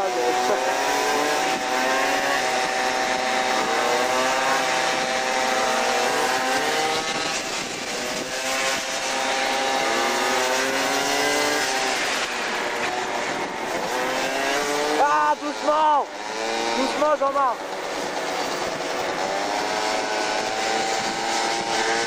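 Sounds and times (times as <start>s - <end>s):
two-stroke scooter engines: 0.0s - 22.0s.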